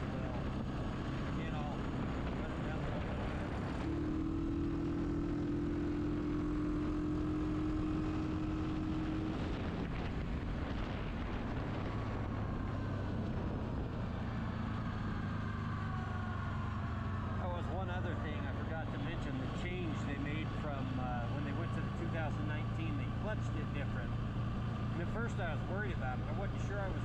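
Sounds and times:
engine revving: 0.0s - 27.0s
wind and tyre noise: 0.0s - 27.0s.

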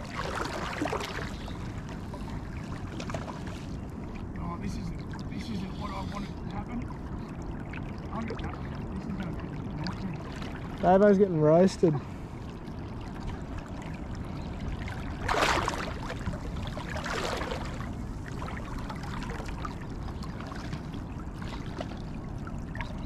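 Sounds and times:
water splashing around legs: 0.0s - 1.9s, 14.8s - 22.1s.

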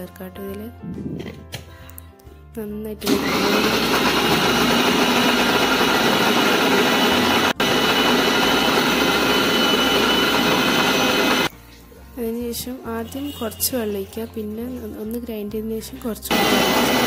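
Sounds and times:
mixer grinder motor whirring: 3.0s - 11.5s, 16.3s - 17.0s.

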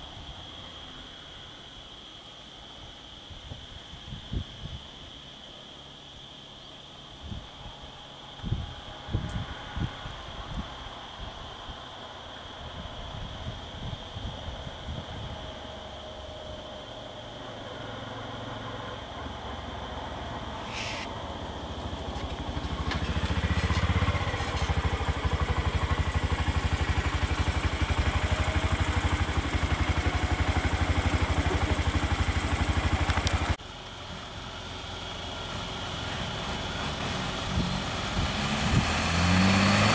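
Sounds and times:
quieter engine hum: 5.0s - 39.9s
truck engine idling: 21.4s - 39.8s.

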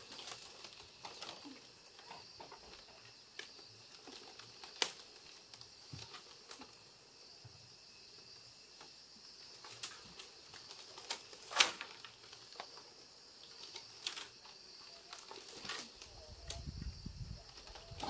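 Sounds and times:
bamboo clicks and knocks: 9.6s - 16.7s.

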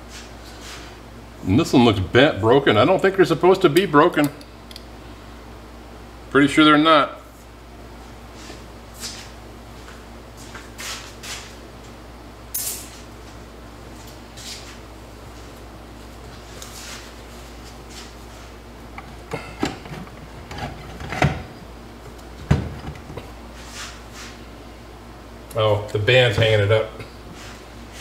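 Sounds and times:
soft scuffs and rustles: 0.0s - 1.0s, 7.3s - 11.9s, 12.9s - 18.7s, 23.4s - 24.5s, 27.2s - 28.0s.

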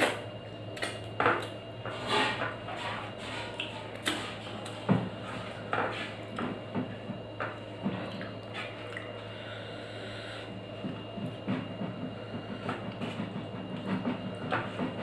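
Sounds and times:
steady low hum: 0.0s - 15.0s
wet chewing: 8.0s - 9.3s.

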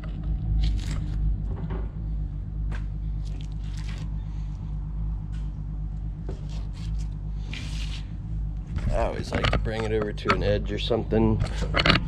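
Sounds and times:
steady low hum: 0.0s - 12.0s
soft wet knife cutting: 3.2s - 4.1s.

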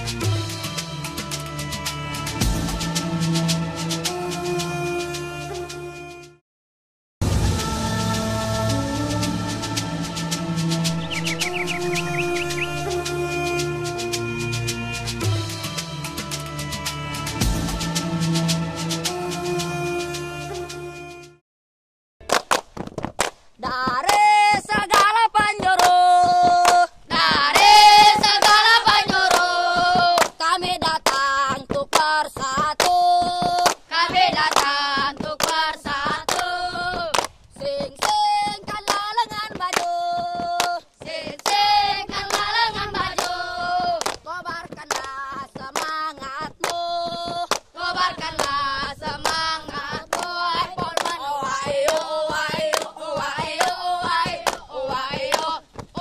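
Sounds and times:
rhythmic hand claps: 0.0s - 4.2s, 9.7s - 18.1s, 22.2s - 56.0s
boys chanting in unison: 51.0s - 55.6s.

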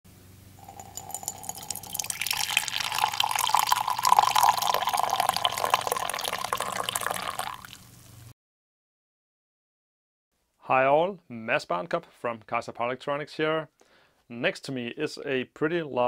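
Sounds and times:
liquid pouring into a mug: 0.6s - 7.9s.

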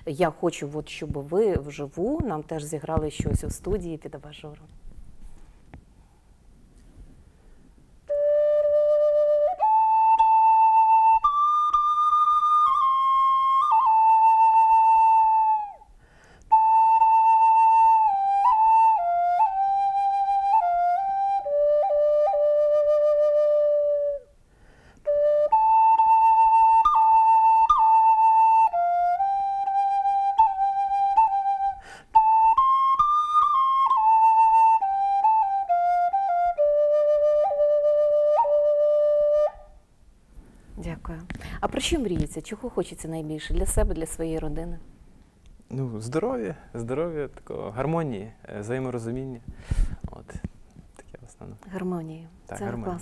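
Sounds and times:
bamboo flute melody: 8.1s - 15.9s, 16.5s - 24.4s, 25.0s - 39.8s.

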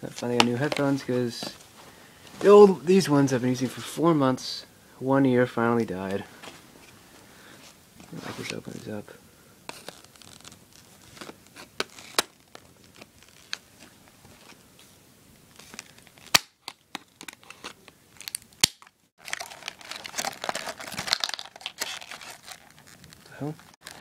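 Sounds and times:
plastic crinkling: 9.7s - 14.6s, 15.5s - 24.0s.

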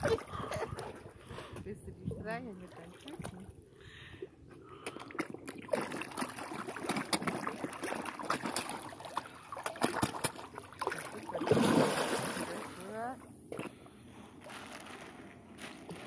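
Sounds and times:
fish splashing at water surface: 4.7s - 12.9s.

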